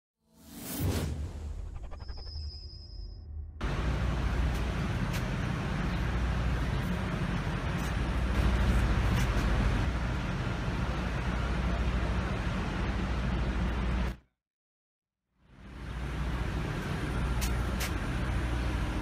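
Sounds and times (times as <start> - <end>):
truck engine idling: 3.6 - 14.1
street traffic hiss: 3.6 - 14.2, 15.5 - 19.0.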